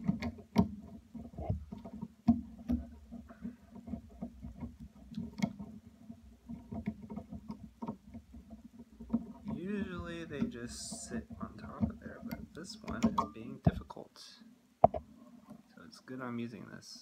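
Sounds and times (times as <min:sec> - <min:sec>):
metal hardware clicks and taps: 0:00.0 - 0:05.8, 0:06.5 - 0:13.8.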